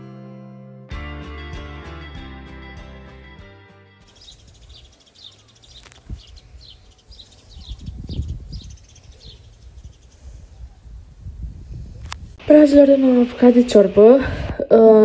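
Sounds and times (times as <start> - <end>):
background music: 0.0 - 4.3
small birds chirping: 4.0 - 11.0
gusts of low rumbling noise: 6.0 - 14.7.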